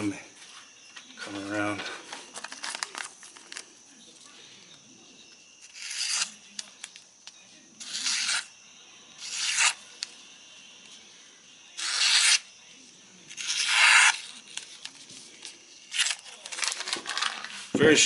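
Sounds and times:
knife slicing paper: 5.6s - 6.4s, 7.8s - 8.5s, 9.2s - 10.0s, 11.8s - 12.5s, 13.3s - 14.8s.

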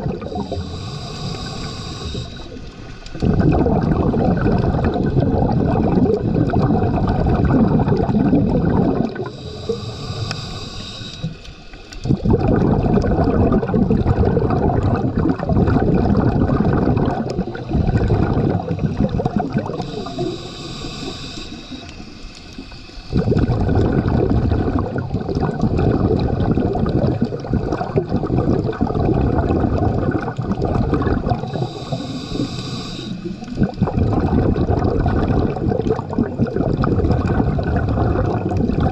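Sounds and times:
bubbling exhalations underwater: 0.0s - 10.6s, 11.2s - 21.3s, 23.0s - 38.9s
regulator inhalation hiss: 0.3s - 3.0s, 9.2s - 12.0s, 19.7s - 23.2s, 31.4s - 33.6s.

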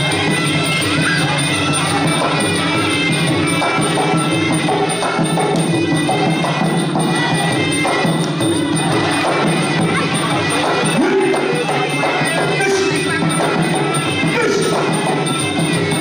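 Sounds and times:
drums beating: 0.0s - 16.0s.

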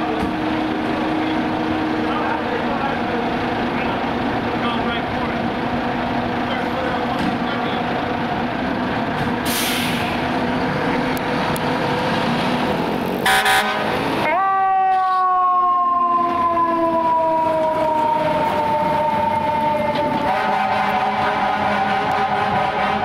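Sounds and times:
fire truck engine rumbling: 0.0s - 23.0s
brief hiss: 9.5s - 10.1s
air horn blast: 13.2s - 15.3s, 20.1s - 23.0s.

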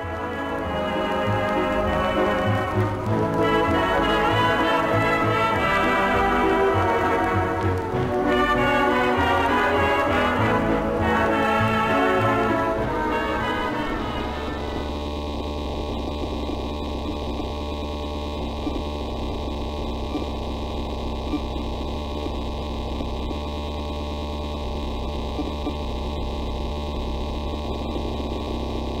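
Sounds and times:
orchestral brass music: 0.0s - 15.1s
low electrical hum: 0.0s - 29.0s.

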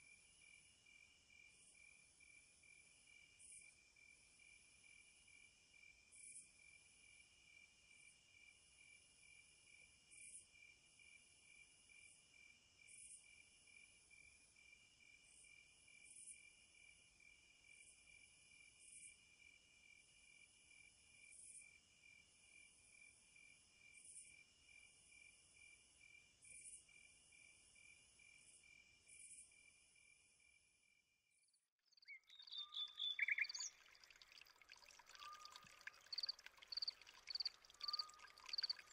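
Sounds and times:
night insects trilling: 32.4s - 38.9s.

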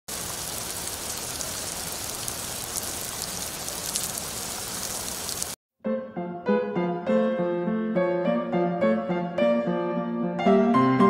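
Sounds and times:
steady rain falling: 0.1s - 5.6s.

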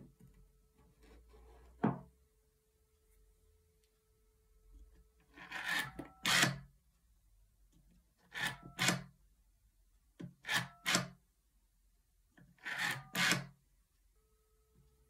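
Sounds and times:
rotary telephone dial rasping: 5.3s - 6.6s, 8.3s - 9.1s, 12.6s - 13.5s.

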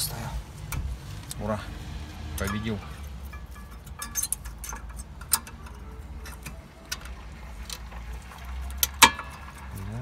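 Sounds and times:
brake parts clicking and tapping: 2.3s - 9.9s.

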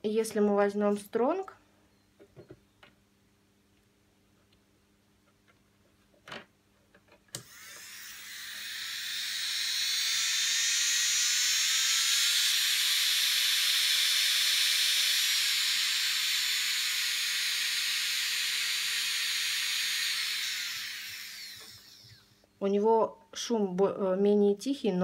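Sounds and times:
nail drill motor whining: 7.3s - 22.4s.

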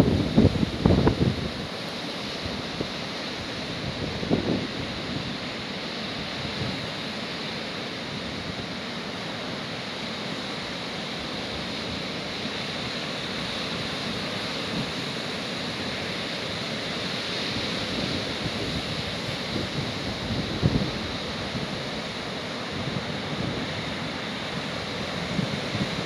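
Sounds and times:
wind buffeting microphone: 0.0s - 1.8s, 17.6s - 21.9s
waves breaking on a beach: 0.0s - 26.0s.

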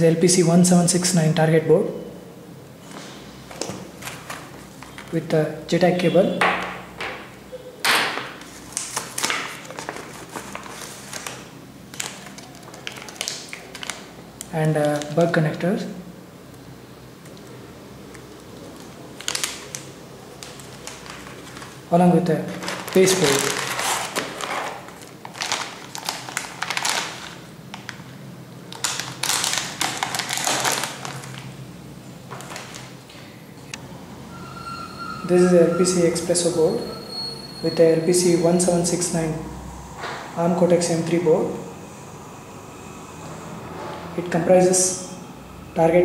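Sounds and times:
paper packaging rustling: 2.8s - 5.2s, 8.0s - 15.4s, 18.1s - 31.6s, 32.3s - 33.1s
bubble wrap crinkling: 3.0s - 5.2s, 8.4s - 15.4s, 18.1s - 31.6s, 32.3s - 33.0s.

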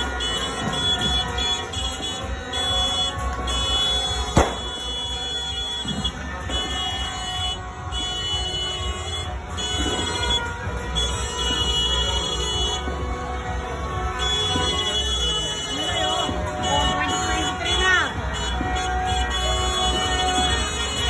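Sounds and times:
busy street din: 0.0s - 21.0s
firecracker bang: 4.1s - 7.3s.

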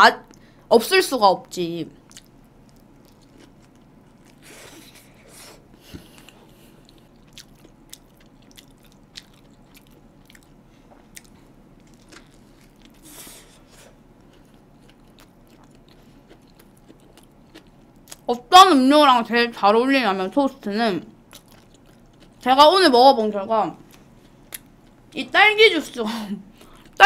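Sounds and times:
chewing sandwich: 2.0s - 18.3s, 21.2s - 22.5s.

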